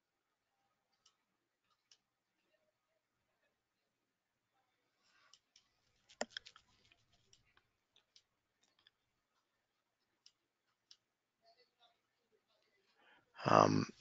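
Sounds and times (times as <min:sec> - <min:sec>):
computer clicking: 0:06.1 - 0:07.0.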